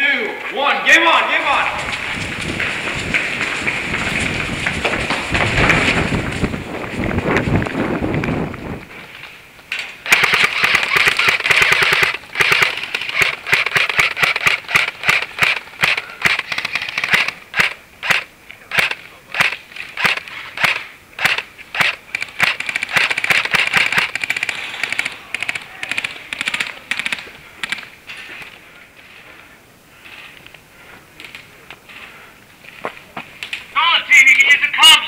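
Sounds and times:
airsoft guns firing: 10.0 - 28.5.

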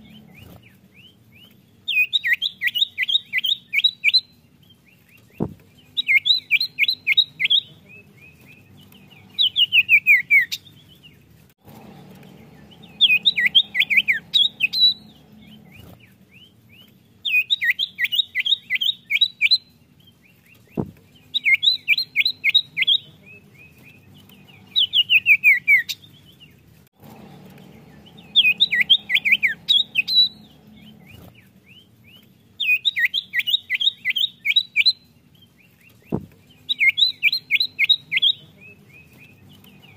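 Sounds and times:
bird singing rapid repeated notes: 0.0 - 39.9.

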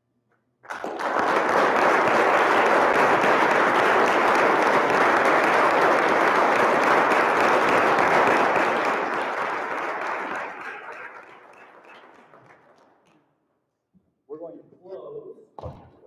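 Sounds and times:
audience applause: 0.7 - 13.1.

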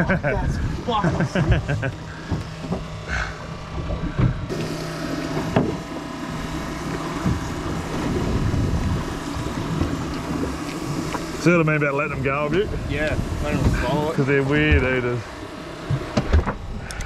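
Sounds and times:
boat engine humming: 0.0 - 17.0
water noise: 0.0 - 17.0
wind: 0.0 - 17.0.

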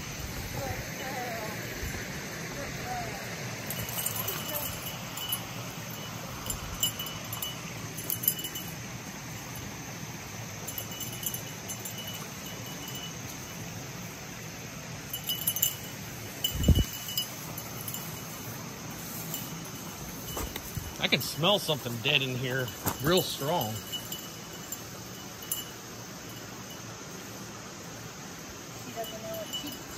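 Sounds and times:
dog collar jingling: 3.6 - 9.7, 10.6 - 13.4, 15.1 - 26.9, 28.8 - 29.9.

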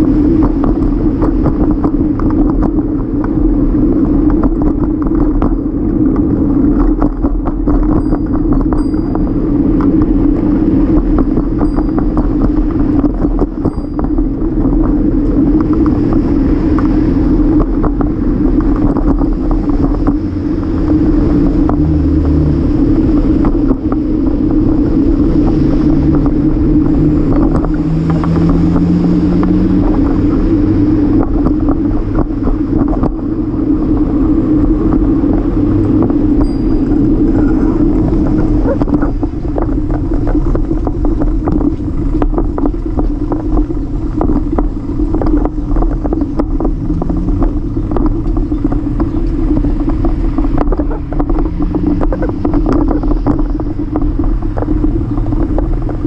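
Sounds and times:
bike rolling over concrete: 0.0 - 56.0
city traffic: 0.0 - 56.0
passing vehicle engine: 15.2 - 56.0.

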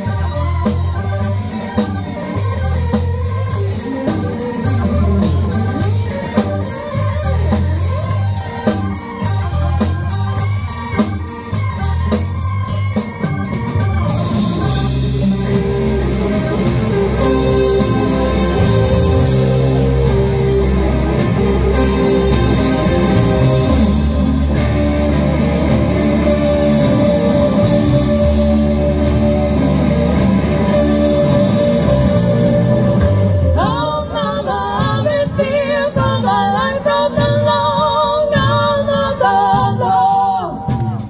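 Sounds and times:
live rock band playing: 0.0 - 41.0
lead vocal singing: 26.2 - 41.0.

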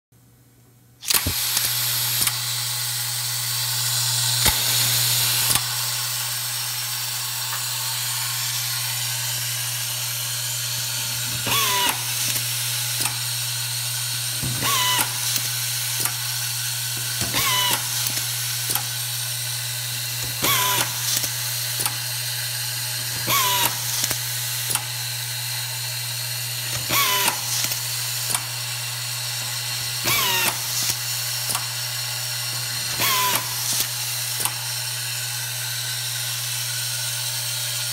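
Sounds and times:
automatic screwdriver whirring: 1.0 - 5.8, 7.5 - 13.3, 14.3 - 16.3, 16.9 - 19.0, 20.2 - 22.1, 23.1 - 25.0, 26.5 - 28.6, 29.4 - 31.8, 32.5 - 34.7
screw feeder humming: 1.0 - 37.9
screw feed clicks: 30.0 - 31.8, 32.9 - 34.6.

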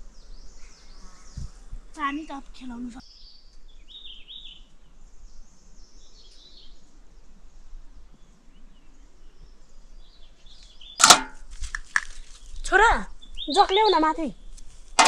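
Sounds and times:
faint bird chirps: 0.0 - 11.0, 12.1 - 14.6
sharp knock with ring: 11.0 - 11.4.

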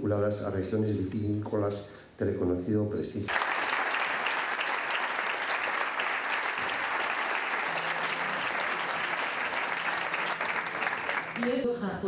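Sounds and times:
audience applauding: 3.3 - 11.7.

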